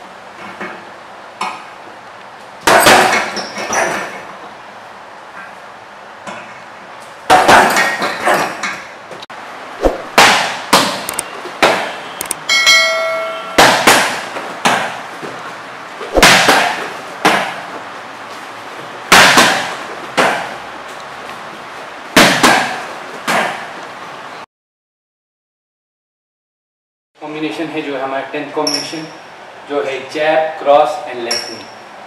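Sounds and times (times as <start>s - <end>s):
gloved punches slapping pads: 9.8s - 11.9s, 13.6s - 15.0s, 16.1s - 17.6s, 19.1s - 20.5s, 22.2s - 23.6s
bell-like ringing tone: 12.4s - 13.6s.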